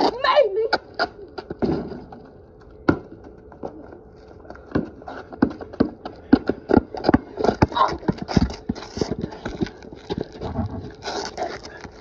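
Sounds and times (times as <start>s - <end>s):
basketball bouncing on concrete: 2.8s - 3.7s, 4.7s - 10.9s
sneakers tapping on concrete: 4.4s - 10.9s.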